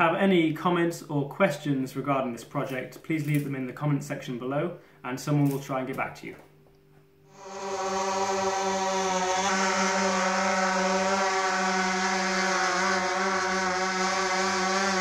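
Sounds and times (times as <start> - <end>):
quadcopter drone buzzing: 7.3 - 15.0.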